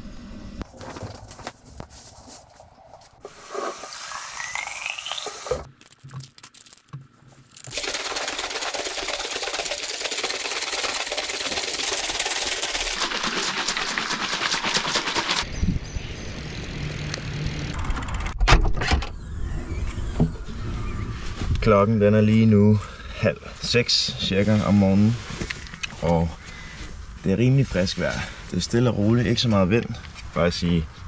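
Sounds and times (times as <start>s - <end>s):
bottles rustling and rattling: 0.7s - 15.5s
liquid pouring into bottle: 7.6s - 15.0s.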